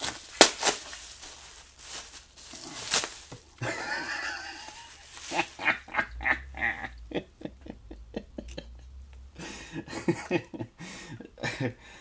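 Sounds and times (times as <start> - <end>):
packaging rustling and clicking: 0.0 - 3.6, 4.6 - 5.6
short laughs: 3.7 - 10.5.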